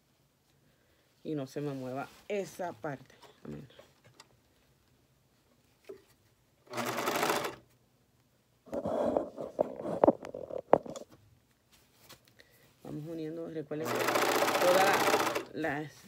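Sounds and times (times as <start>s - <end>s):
overlock sewing machine stitching: 6.6s - 7.6s, 13.8s - 15.5s.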